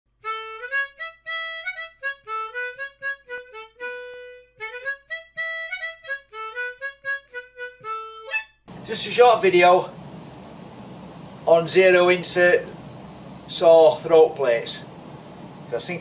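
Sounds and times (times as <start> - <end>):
harmonica playing quick tune: 0.2 - 9.8.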